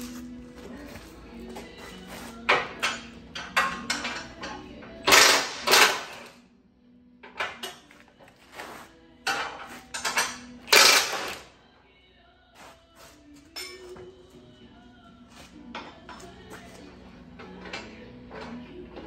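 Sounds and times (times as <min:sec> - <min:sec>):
metal clanking and knocking: 0:02.4 - 0:06.3, 0:09.2 - 0:11.4
metal clattering bursts: 0:02.5 - 0:06.3, 0:09.3 - 0:11.5.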